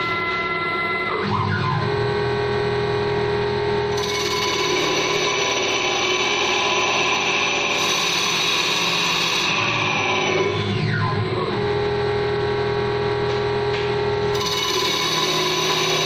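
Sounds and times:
lathe machine whine: 0.0 - 16.0
tool shaving spinning wood: 4.0 - 10.4, 14.3 - 16.0.

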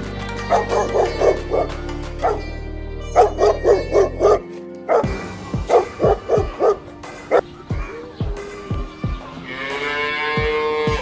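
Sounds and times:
music playing: 0.0 - 11.0
dog barking: 0.5 - 2.4, 3.2 - 5.1, 5.7 - 7.5.

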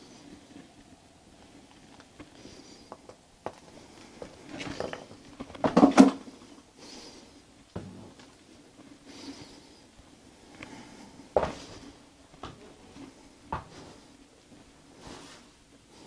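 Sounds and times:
handling knocks and rustles: 0.0 - 6.6
footsteps: 7.7 - 15.6.

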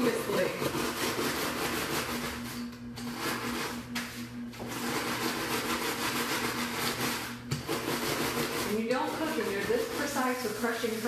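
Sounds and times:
rolling pin crushing cookies: 0.0 - 2.4, 4.6 - 11.0.

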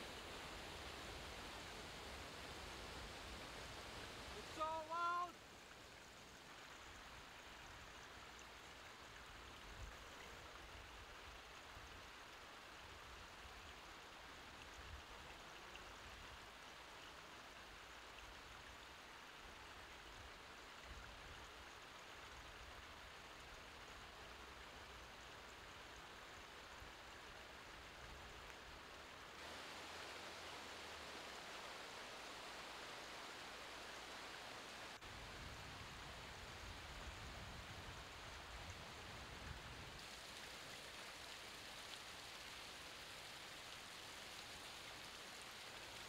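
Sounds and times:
stream rushing over rocks: 0.0 - 46.0.

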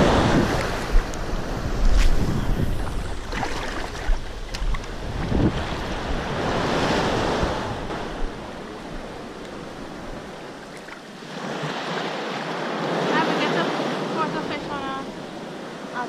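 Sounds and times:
wind buffeting microphone: 0.0 - 11.8.

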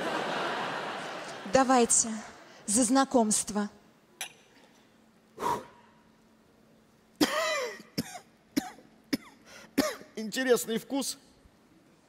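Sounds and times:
man coughing: 7.2 - 10.2.

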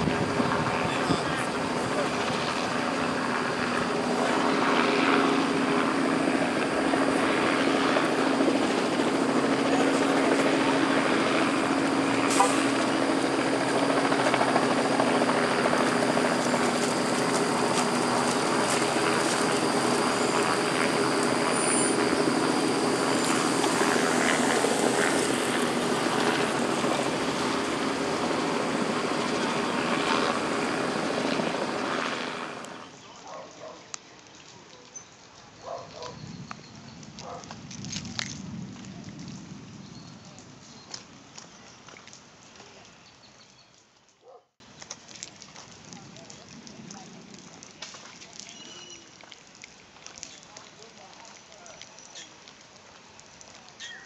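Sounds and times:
thin high whine: 0.0 - 32.8
helicopter rotor and engine drone: 0.0 - 33.0.

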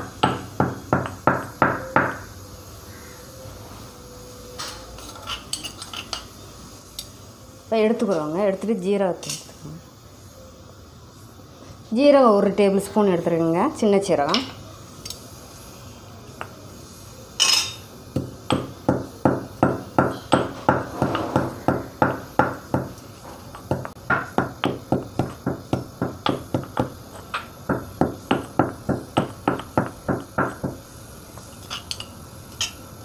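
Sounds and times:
stone pestle pounding in mortar: 0.0 - 2.2, 18.2 - 30.8.

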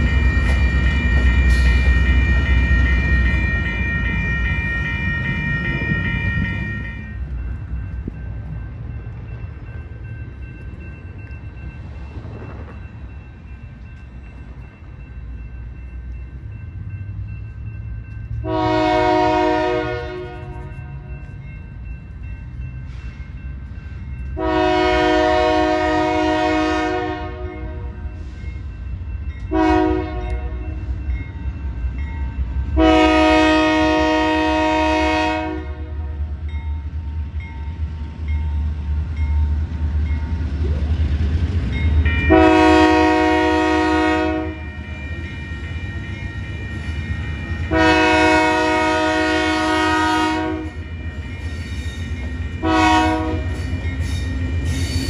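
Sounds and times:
locomotive air horn blasts: 18.4 - 20.9, 24.4 - 28.0, 29.5 - 30.7, 32.8 - 36.2, 42.3 - 44.6, 47.7 - 50.8, 52.6 - 53.6.

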